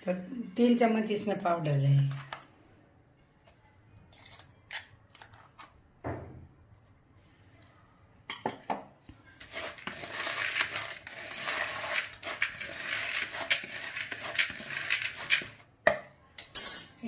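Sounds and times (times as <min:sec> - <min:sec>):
spoon stirring nuts in plastic bowl: 0:09.0 - 0:15.7
nuts rattling and scraping: 0:09.4 - 0:15.6.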